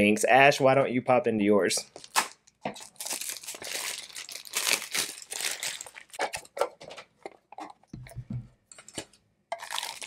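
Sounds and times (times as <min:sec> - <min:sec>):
packaging tearing and crinkling: 0:01.9 - 0:06.6, 0:09.6 - 0:10.0.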